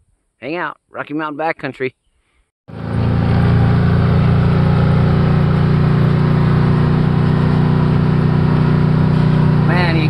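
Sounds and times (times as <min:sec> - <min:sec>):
off-road vehicle engine droning: 0:02.7 - 0:10.0.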